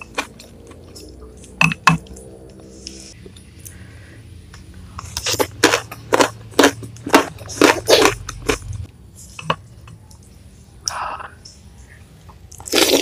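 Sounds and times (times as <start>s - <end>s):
chewing crunchy food: 0.0s - 2.3s, 5.0s - 8.9s.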